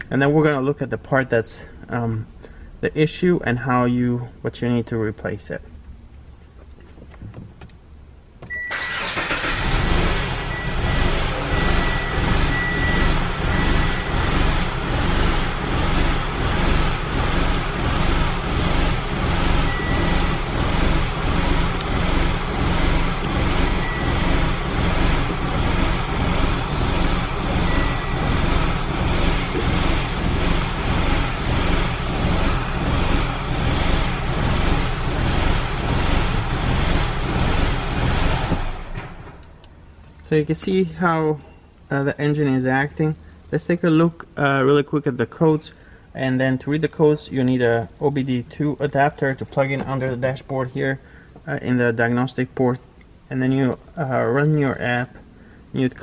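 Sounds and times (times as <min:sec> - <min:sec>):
car engine starting: 0:00.0 - 0:56.0
engine idling rough and surging: 0:09.5 - 0:39.3.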